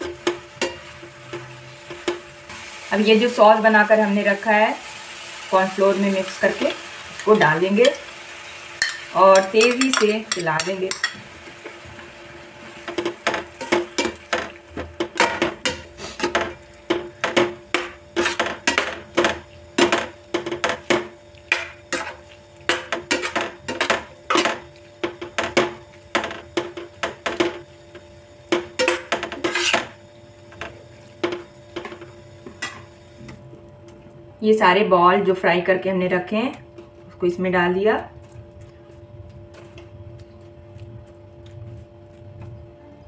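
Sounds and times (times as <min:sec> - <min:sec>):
faint hum: 0:00.0 - 0:43.0
spoon stirring in metal pan: 0:08.8 - 0:11.8, 0:12.8 - 0:27.6, 0:28.5 - 0:29.9.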